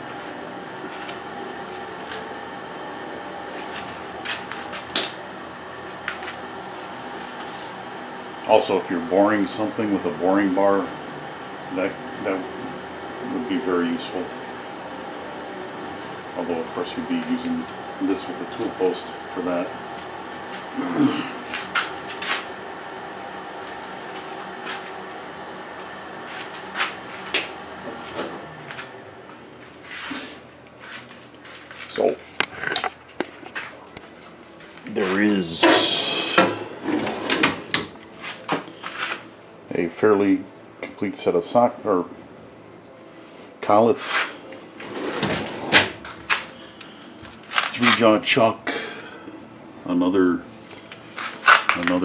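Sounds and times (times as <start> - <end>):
steady machine hum: 0.0 - 52.0
lathe carriage metallic clunks: 35.6 - 38.0.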